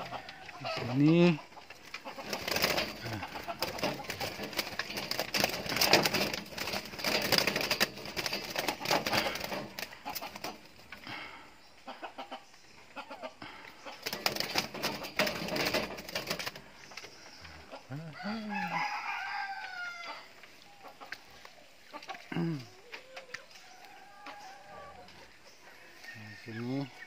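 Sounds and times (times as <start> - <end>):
pigeons flapping wings in cage: 2.0 - 10.7, 14.0 - 16.7.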